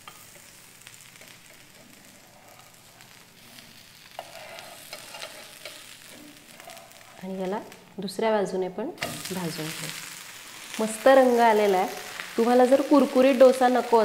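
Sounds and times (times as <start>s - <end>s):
dosa sizzling on a pan: 0.0s - 8.2s, 8.8s - 14.0s
metal spatula scraping and clicking: 1.2s - 7.2s.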